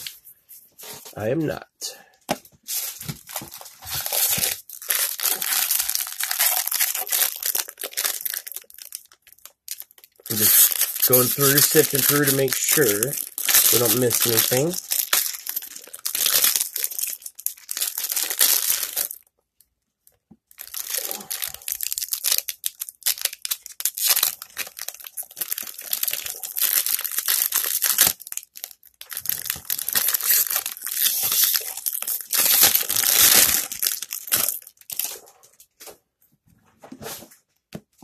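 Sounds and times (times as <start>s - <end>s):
plastic wrappers crinkling: 2.6s - 19.3s, 20.0s - 35.9s.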